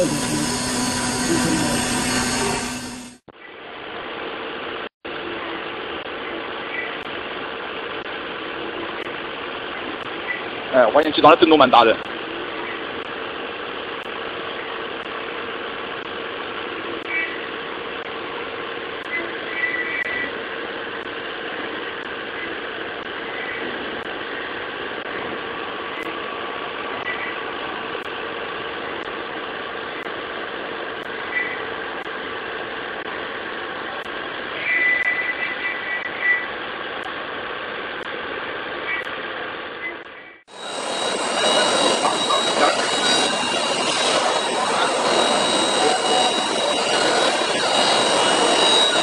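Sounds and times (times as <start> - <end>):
cutter squeals: 0.0 - 3.2, 39.9 - 49.0
milling machine whine: 0.0 - 3.3, 40.5 - 49.0.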